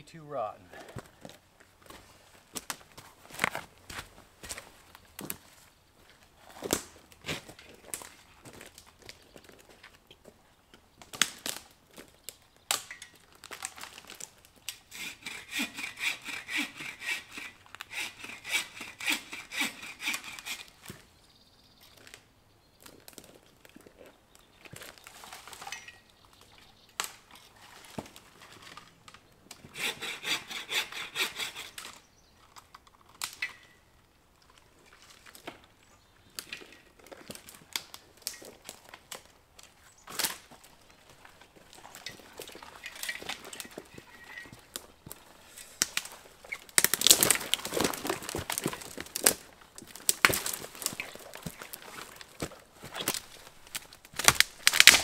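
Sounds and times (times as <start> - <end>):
twigs snapping underfoot: 2.5 - 3.7, 11.0 - 14.8, 36.3 - 55.0
bow saw cutting branch: 14.9 - 20.8, 29.7 - 32.0.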